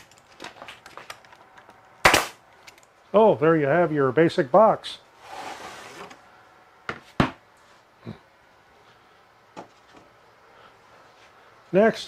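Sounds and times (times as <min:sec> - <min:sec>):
wood scraping slide: 0:05.2 - 0:06.2.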